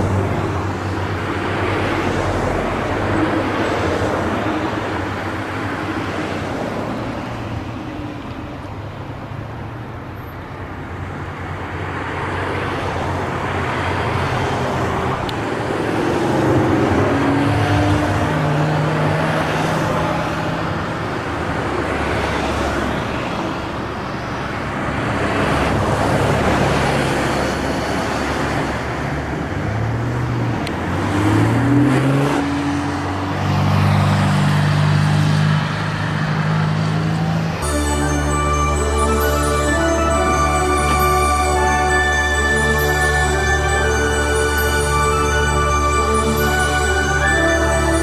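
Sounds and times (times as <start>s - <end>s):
sports cars driving past: 0.0s - 48.0s
engine revving through gears: 30.9s - 36.1s.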